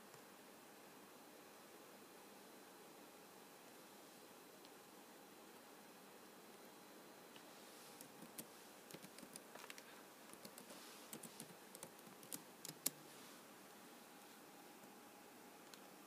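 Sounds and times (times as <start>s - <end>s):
computer keyboard typing: 8.0s - 13.0s.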